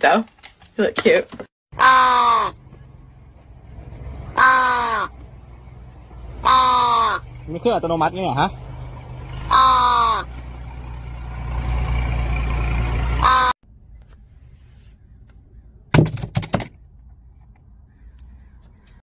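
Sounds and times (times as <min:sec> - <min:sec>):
crow cawing: 0:01.7 - 0:02.6, 0:04.4 - 0:05.2, 0:06.4 - 0:07.4, 0:09.4 - 0:10.4, 0:13.2 - 0:13.6, 0:17.9 - 0:19.0
thumps: 0:15.9 - 0:17.0.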